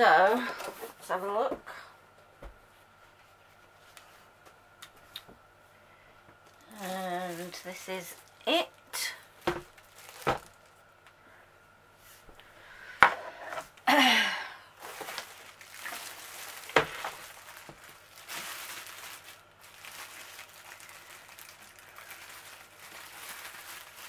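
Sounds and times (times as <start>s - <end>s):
plastic wrapping crinkling: 6.4s - 10.8s, 14.8s - 24.0s.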